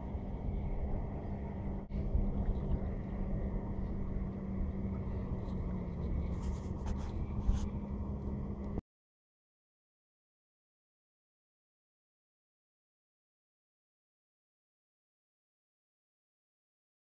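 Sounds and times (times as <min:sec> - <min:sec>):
boat motor running: 0:00.0 - 0:08.8.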